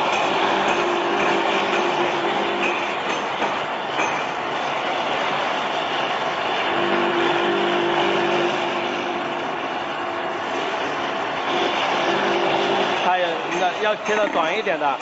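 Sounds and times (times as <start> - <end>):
mill grinding with loud whir: 0.0 - 15.0
motor hum: 5.3 - 13.5.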